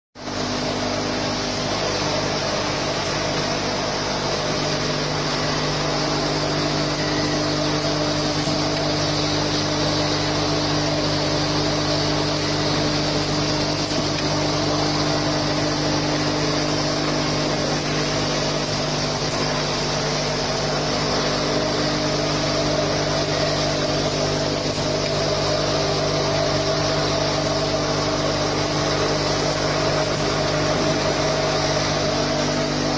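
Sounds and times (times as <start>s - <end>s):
printing machine mechanical hum: 0.2s - 32.9s.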